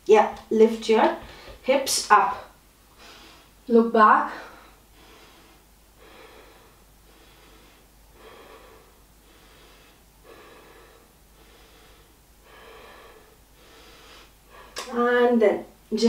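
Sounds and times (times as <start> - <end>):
woman breathing steadily: 1.1 - 1.7, 2.3 - 14.9.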